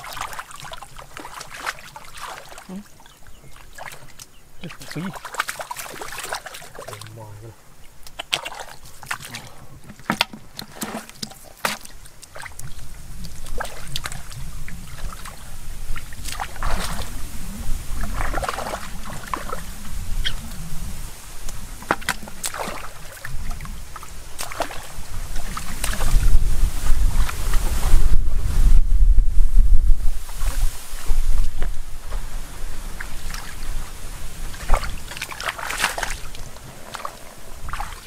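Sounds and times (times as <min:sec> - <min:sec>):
hands splashing in muddy water: 0:00.0 - 0:02.9, 0:03.5 - 0:07.2, 0:08.0 - 0:17.2, 0:18.0 - 0:19.8, 0:21.5 - 0:27.6, 0:34.4 - 0:38.0
wind rumbling on microphone: 0:12.0 - 0:38.0.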